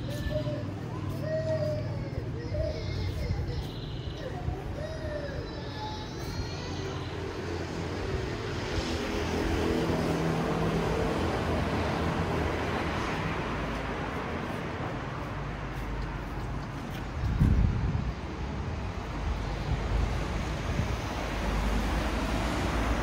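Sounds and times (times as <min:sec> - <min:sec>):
vehicle passing: 0:06.9 - 0:23.0.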